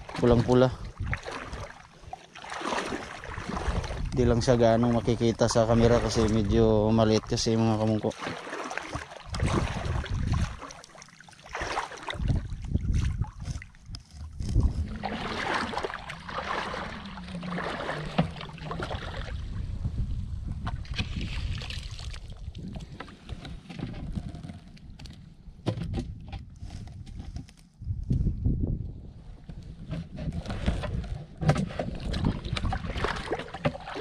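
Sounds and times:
wind rumble on microphone: 0:00.0 - 0:01.8, 0:03.2 - 0:08.0, 0:09.3 - 0:10.7, 0:12.1 - 0:33.8
seawater splashing and sloshing: 0:00.0 - 0:20.0, 0:20.6 - 0:24.7, 0:30.0 - 0:34.0.

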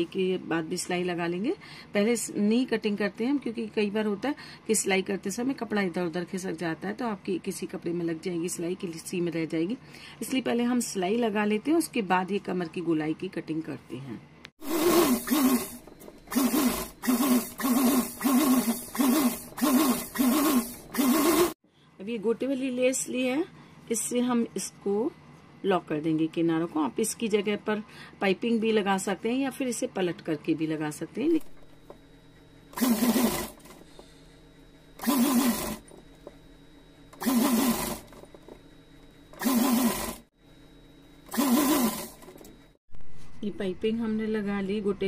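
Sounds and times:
sewing machine stitching: 0:14.6 - 0:21.6, 0:32.8 - 0:33.8, 0:35.0 - 0:35.9, 0:37.2 - 0:38.2, 0:39.4 - 0:40.3, 0:41.3 - 0:42.4.

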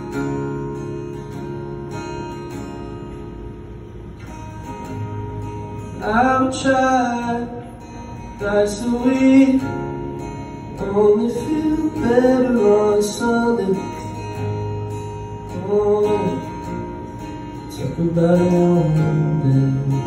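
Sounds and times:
acoustic guitar: 0:00.0 - 0:20.0
man singing: 0:06.0 - 0:07.8, 0:08.4 - 0:09.8, 0:10.8 - 0:14.2, 0:15.5 - 0:16.6, 0:17.7 - 0:20.0.

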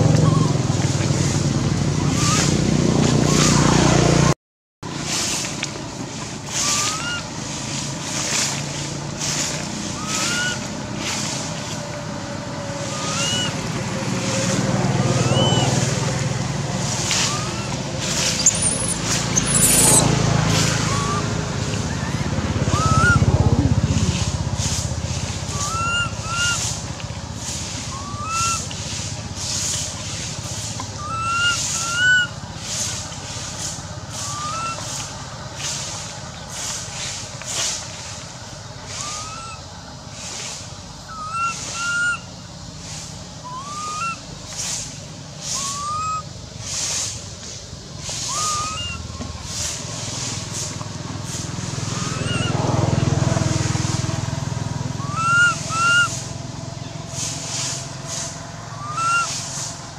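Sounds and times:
baby monkey coo calls: 0:00.0 - 0:00.7, 0:02.0 - 0:02.6, 0:06.5 - 0:07.3, 0:10.0 - 0:10.7, 0:12.9 - 0:13.6, 0:15.1 - 0:15.8, 0:17.0 - 0:20.0, 0:20.8 - 0:24.2, 0:25.4 - 0:26.8, 0:27.6 - 0:28.8, 0:30.9 - 0:32.9, 0:34.1 - 0:35.0, 0:38.9 - 0:39.6, 0:41.1 - 0:42.3, 0:43.4 - 0:44.3, 0:45.5 - 0:46.3, 0:48.2 - 0:49.2, 0:51.9 - 0:52.6, 0:54.9 - 0:56.3, 0:58.7 - 0:59.5
vehicle passing: 0:00.0 - 0:59.9.

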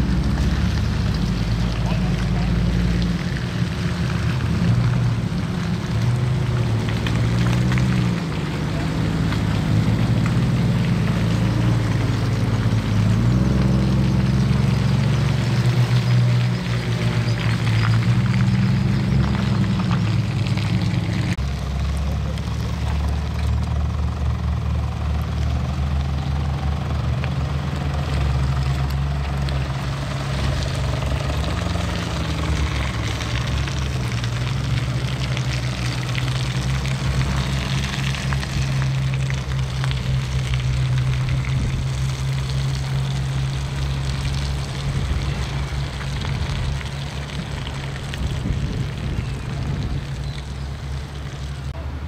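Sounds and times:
suv engine at low revs: 0:00.0 - 0:52.0
tyres working through mud: 0:00.0 - 0:52.0.

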